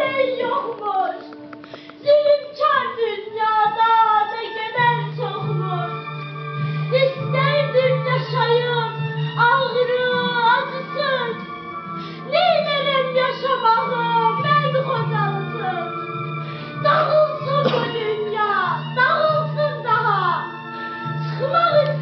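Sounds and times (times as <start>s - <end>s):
instrumental music: 0.0s - 22.0s
young woman singing: 16.9s - 20.4s.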